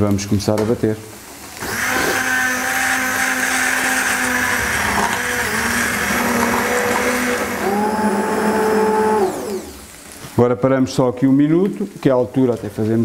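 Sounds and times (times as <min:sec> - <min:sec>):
immersion blender running: 0:01.6 - 0:10.1.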